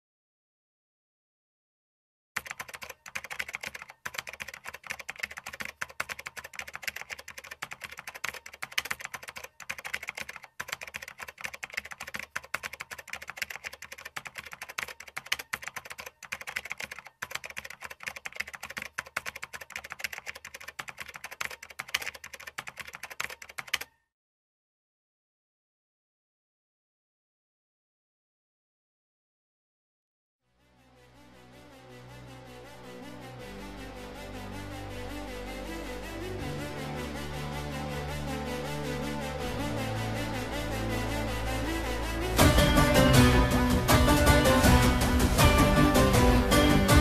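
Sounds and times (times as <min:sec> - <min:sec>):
typing on keys: 0:02.4 - 0:24.0.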